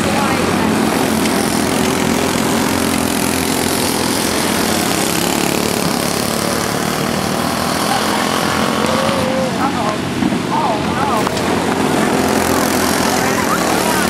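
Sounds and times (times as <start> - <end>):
go-kart engines buzzing: 0.0 - 14.0.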